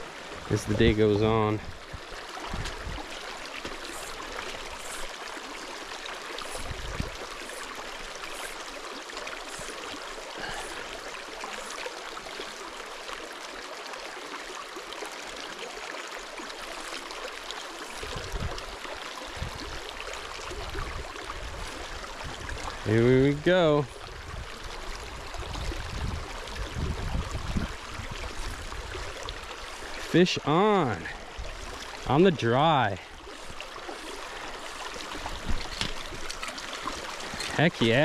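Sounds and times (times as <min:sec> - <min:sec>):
stream flowing: 0:00.0 - 0:38.0.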